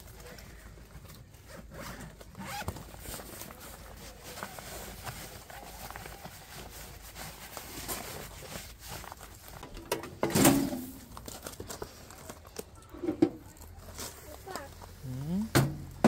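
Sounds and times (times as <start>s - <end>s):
fabric rustling and brushing: 1.3s - 9.7s.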